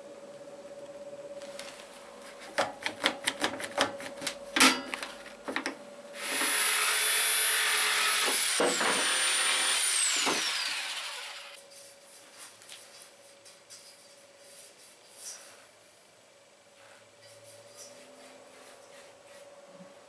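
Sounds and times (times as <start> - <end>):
electric drill whining: 6.2 - 11.6.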